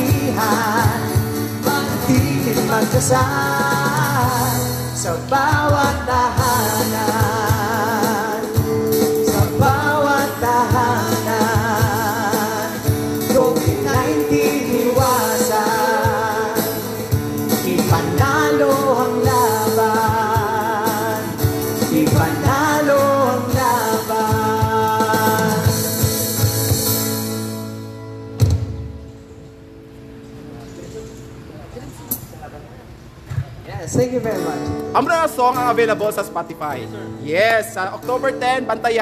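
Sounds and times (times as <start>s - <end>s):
vocal group singing in harmony: 0.0s - 26.0s
acoustic guitar: 0.0s - 39.0s.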